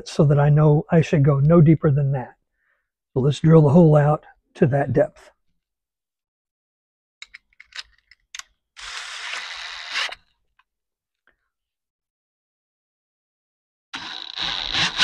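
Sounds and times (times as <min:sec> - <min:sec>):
cordless drill whining: 0:08.8 - 0:10.3, 0:14.0 - 0:15.0.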